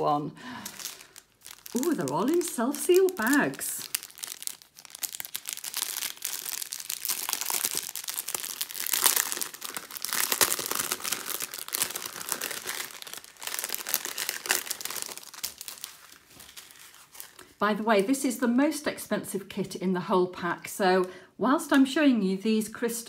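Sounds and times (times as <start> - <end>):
plastic bags crinkling: 0.0 - 17.6.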